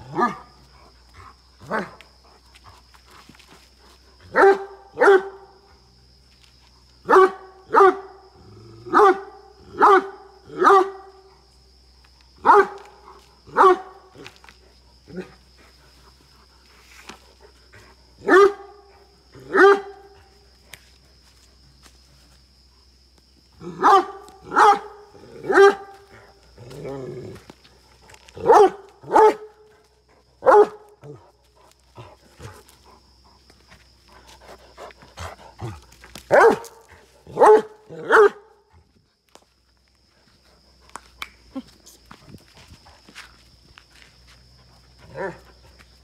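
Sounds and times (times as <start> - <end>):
large dog barking aggressively: 4.2 - 5.6, 7.0 - 8.2, 8.8 - 11.2, 12.4 - 14.2, 18.2 - 20.2, 23.6 - 26.1, 28.4 - 29.6, 30.4 - 31.2, 34.7 - 38.6.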